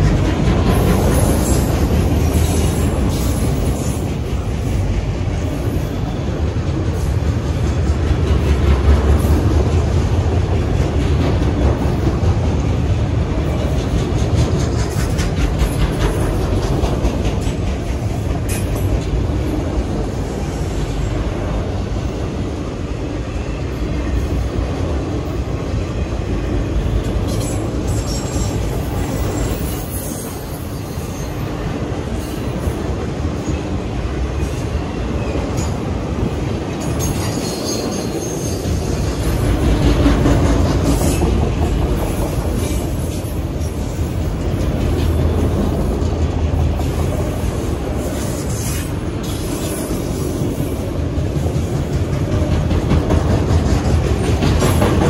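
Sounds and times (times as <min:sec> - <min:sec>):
freight cars rumbling on rails: 0:00.0 - 0:55.0
high wheel squeals: 0:27.3 - 0:31.6.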